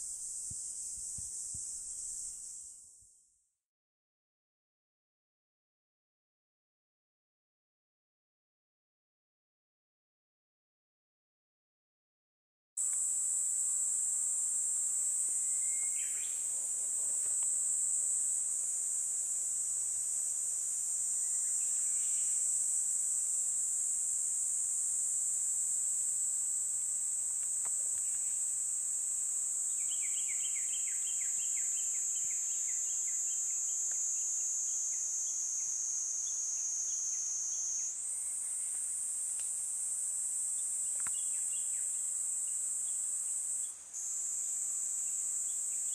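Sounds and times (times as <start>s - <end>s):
insects trilling: 0.0s - 3.1s, 12.8s - 45.9s.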